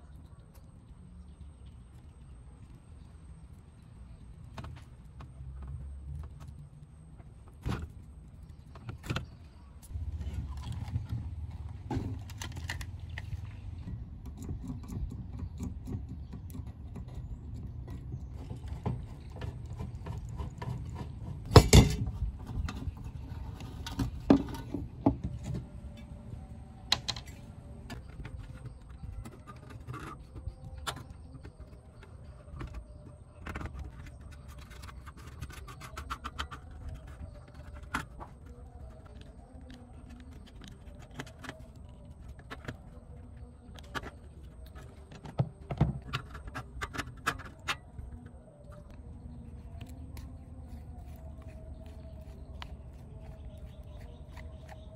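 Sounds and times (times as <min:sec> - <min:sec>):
sharp metal knocks: 0:21.5 - 0:22.2.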